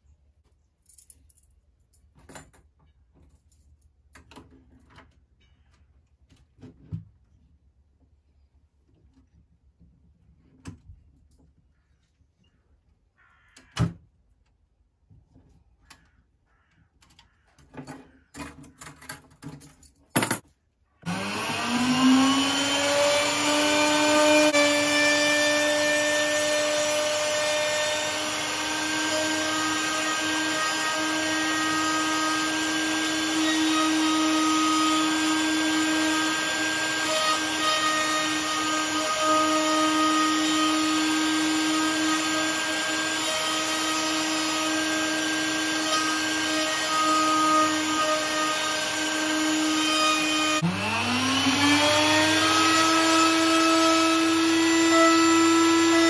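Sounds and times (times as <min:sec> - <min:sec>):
router motor whine: 0:21.0 - 0:56.0.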